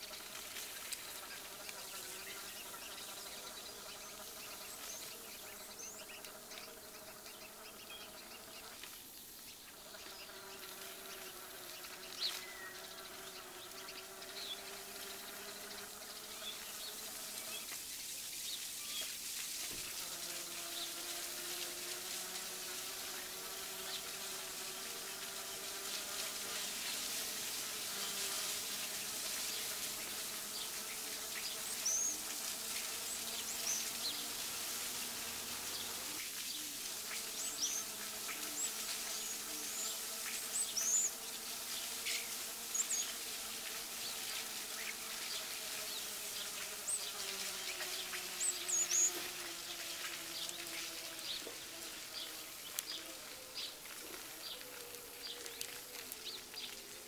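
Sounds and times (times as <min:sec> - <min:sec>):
birds chirping: 0:00.0 - 0:57.0
steady hiss: 0:00.0 - 0:57.0
electric bicycle motor whining: 0:19.8 - 0:57.0.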